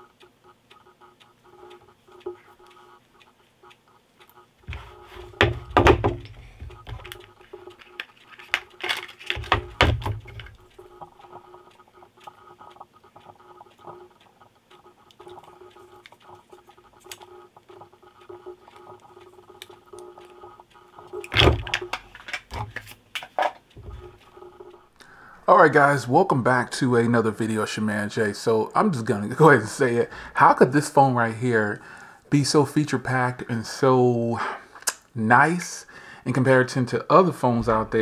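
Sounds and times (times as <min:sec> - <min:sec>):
faint steady hum: 0:00.0 - 0:38.0
objects knocking and thudding: 0:04.7 - 0:07.2, 0:09.3 - 0:10.5.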